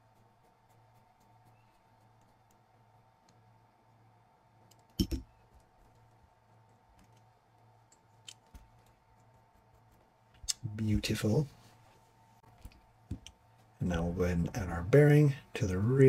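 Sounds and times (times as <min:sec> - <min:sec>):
faint steady hum: 0:00.0 - 0:16.0
plastic parts clicking and knocking: 0:04.6 - 0:05.7.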